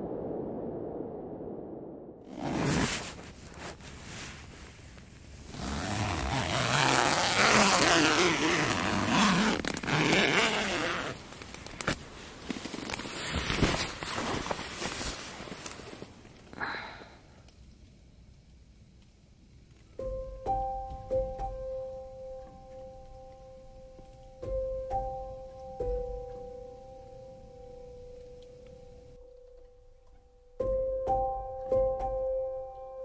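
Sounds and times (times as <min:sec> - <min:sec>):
zipper: 0:02.3 - 0:03.8, 0:05.5 - 0:11.2
tent fabric rustling: 0:02.3 - 0:16.6.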